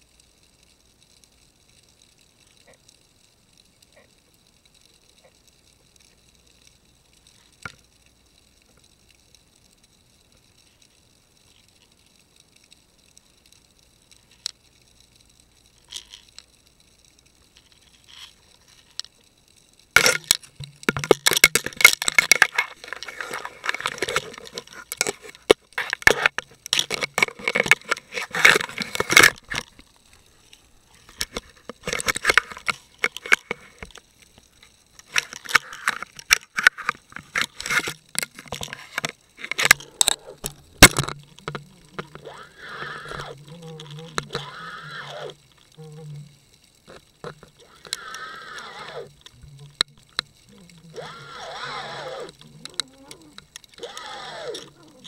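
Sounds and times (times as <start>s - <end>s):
crab clicking and scraping underwater: 0.0s - 55.0s.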